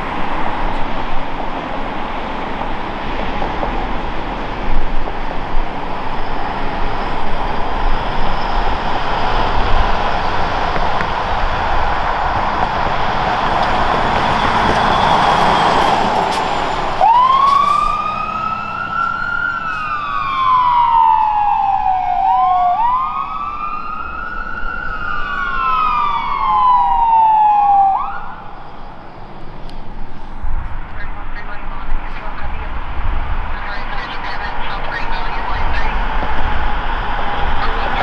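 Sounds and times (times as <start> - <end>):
dual-tone sirens wailing: 0.0 - 38.0
steady rushing roar: 0.0 - 38.0.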